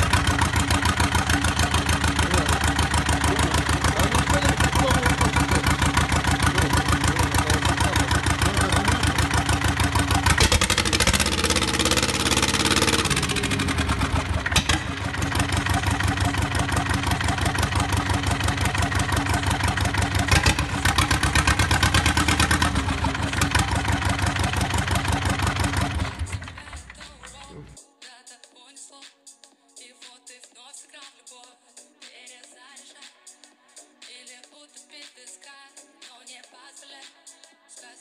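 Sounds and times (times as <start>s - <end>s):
diesel engine running: 0.0s - 27.8s.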